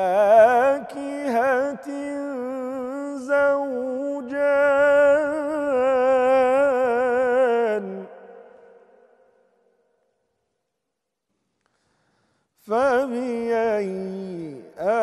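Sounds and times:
man reciting in chant: 0:00.0 - 0:08.9, 0:12.6 - 0:15.0.

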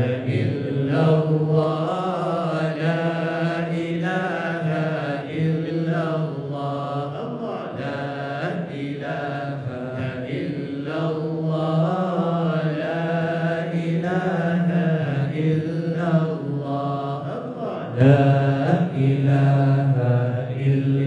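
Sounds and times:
group of voices chanting: 0:00.0 - 0:21.0.

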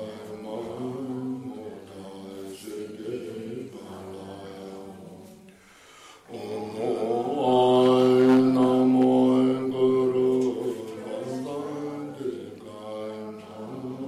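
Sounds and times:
low-pitched mantra chanting: 0:06.3 - 0:14.0.

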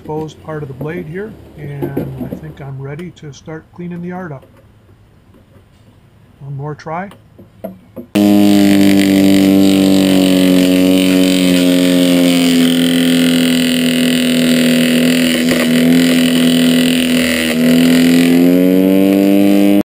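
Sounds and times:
electric wood chipper running: 0:08.2 - 0:19.8.

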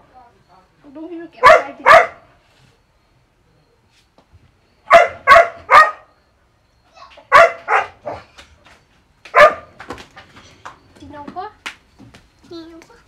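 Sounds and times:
dog barking: 0:01.4 - 0:02.3, 0:04.9 - 0:06.1, 0:07.3 - 0:08.3, 0:09.3 - 0:09.8.

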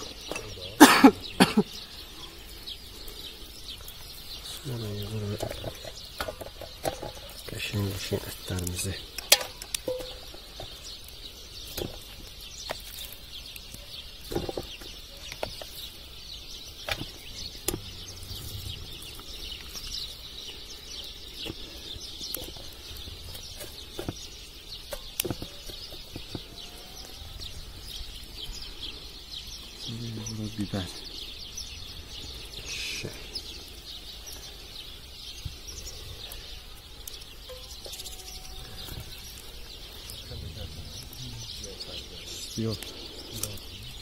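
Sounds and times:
small birds chirping: 0:00.0 - 0:44.0.

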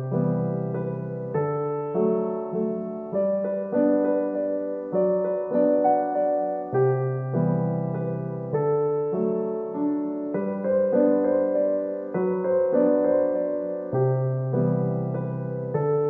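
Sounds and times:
slow piano music: 0:00.0 - 0:16.0.

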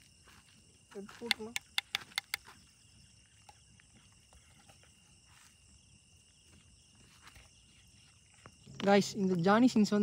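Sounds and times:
faint crickets chirring: 0:00.0 - 0:10.0
faint ticks: 0:01.2 - 0:02.5.

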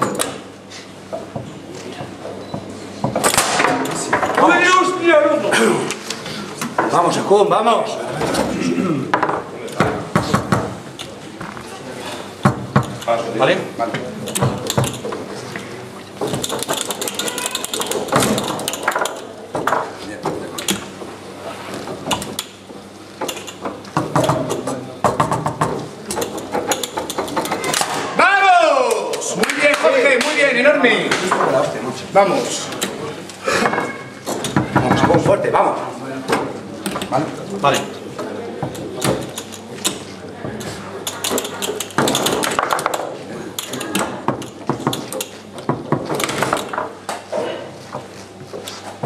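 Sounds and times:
foosball rods knocking: 0:01.1 - 0:04.7, 0:09.1 - 0:10.8, 0:12.4 - 0:13.2, 0:13.9 - 0:15.3, 0:16.1 - 0:21.1, 0:21.7 - 0:28.2, 0:33.6 - 0:35.6, 0:36.3 - 0:47.3
foosball ball clacking: 0:09.1 - 0:10.8, 0:16.2 - 0:21.1, 0:21.8 - 0:28.1, 0:33.7 - 0:35.5, 0:38.6 - 0:47.3.

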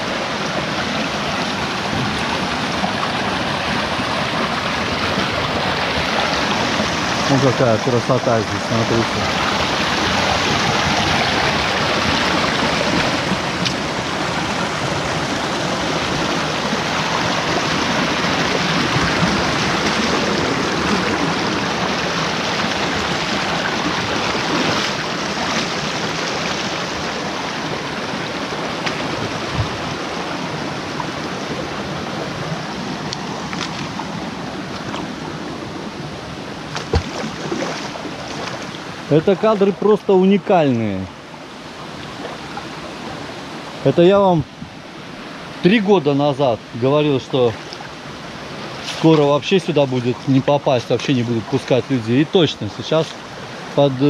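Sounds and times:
stream splashing over rocks: 0:00.0 - 0:54.0.

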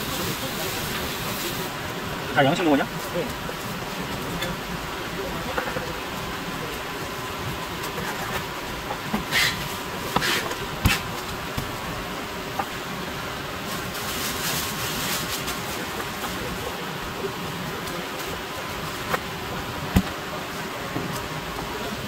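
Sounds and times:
background buzz: 0:00.0 - 0:22.0
knife scraping on cutting board: 0:09.3 - 0:11.1.

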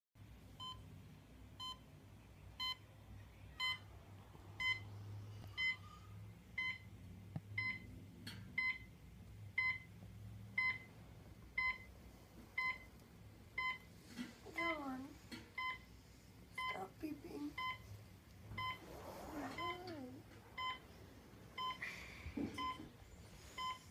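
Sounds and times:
alarm clock beeping: 0:02.6 - 0:02.8, 0:03.6 - 0:03.8, 0:04.6 - 0:04.9, 0:05.6 - 0:05.9, 0:06.6 - 0:06.9, 0:07.6 - 0:07.9, 0:08.5 - 0:08.9, 0:09.6 - 0:09.9, 0:10.6 - 0:10.9, 0:11.6 - 0:11.9, 0:12.6 - 0:12.9, 0:13.6 - 0:13.9, 0:15.6 - 0:15.9, 0:16.6 - 0:17.0, 0:17.6 - 0:17.9, 0:18.6 - 0:18.9, 0:20.6 - 0:20.9, 0:21.6 - 0:21.8, 0:22.6 - 0:22.9, 0:23.6 - 0:23.9.

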